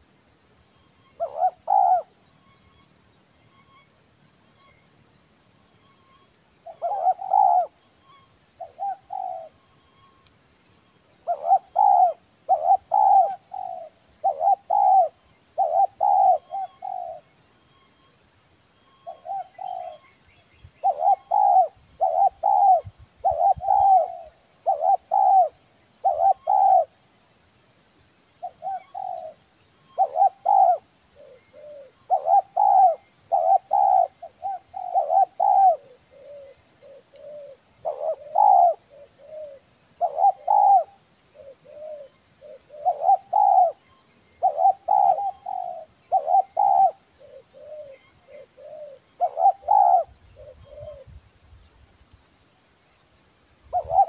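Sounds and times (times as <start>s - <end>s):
dove cooing: 1.2s - 2.1s, 6.6s - 7.8s, 8.6s - 9.6s, 11.2s - 17.3s, 19.0s - 20.1s, 20.8s - 27.0s, 28.4s - 43.8s, 44.4s - 51.2s, 53.7s - 54.0s.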